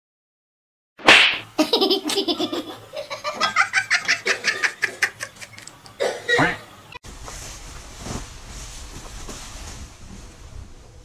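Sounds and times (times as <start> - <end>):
sharp smack: 1.0 - 1.5.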